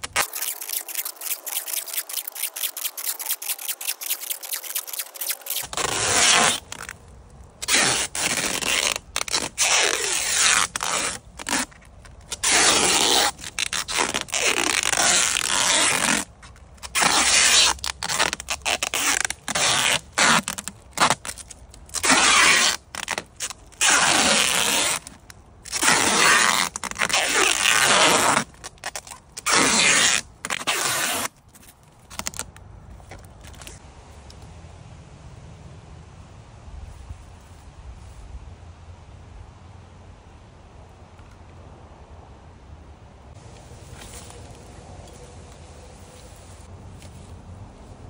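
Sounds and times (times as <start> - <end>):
adhesive tape ripping off roll: 0.0 - 7.0, 7.6 - 32.6.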